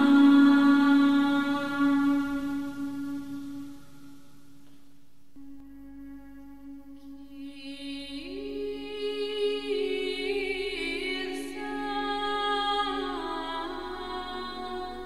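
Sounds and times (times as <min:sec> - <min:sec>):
slow sung chant: 0:00.0 - 0:04.6, 0:05.4 - 0:15.0
held drone note: 0:00.0 - 0:04.8.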